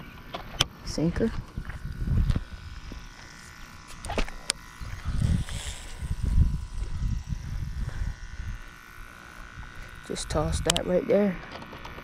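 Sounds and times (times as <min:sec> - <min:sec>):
faint steady buzz: 0:00.0 - 0:12.0
wind rumbling on microphone: 0:00.8 - 0:10.9
sharp clicks: 0:09.7 - 0:10.9.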